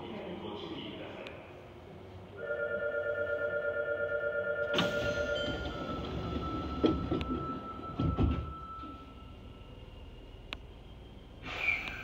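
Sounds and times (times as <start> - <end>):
train door chime: 4.6 - 9.7
sliding doors closing with thump: 4.7 - 8.8.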